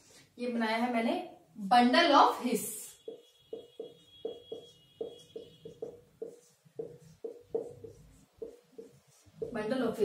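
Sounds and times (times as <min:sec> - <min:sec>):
marker tapping on whiteboard: 0:02.9 - 0:09.7.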